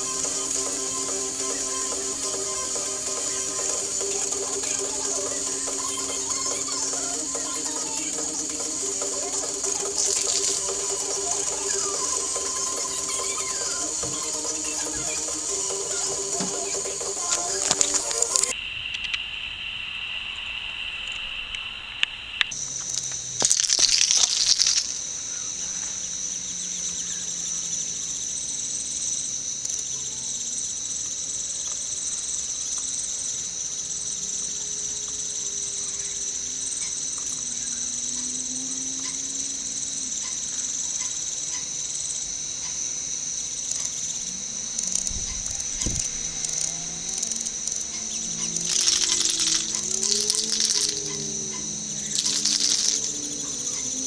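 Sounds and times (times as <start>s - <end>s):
high-pitched insect drone: 0.0s - 54.0s.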